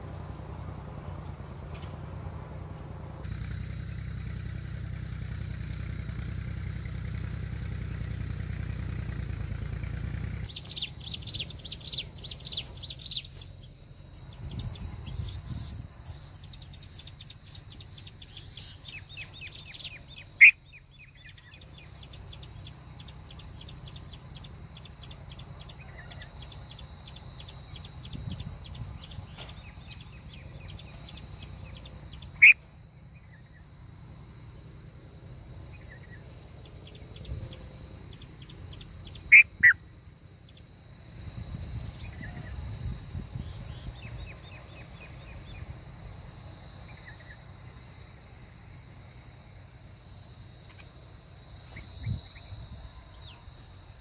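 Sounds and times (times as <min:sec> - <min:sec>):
birds chirping: 0:07.9 - 0:54.0
loud sharp bird calls: 0:10.4 - 0:33.7, 0:35.6 - 0:40.7
quick repeated ticking bird notes: 0:10.5 - 0:13.8, 0:14.4 - 0:32.7, 0:38.0 - 0:40.7.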